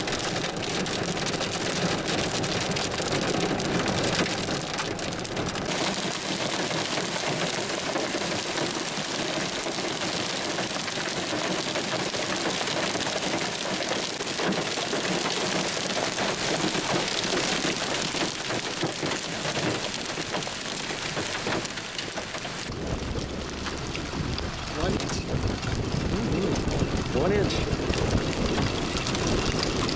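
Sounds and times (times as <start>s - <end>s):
hail and heavy rain clattering: 0.0s - 29.9s
wind rumble on microphone: 21.4s - 29.9s.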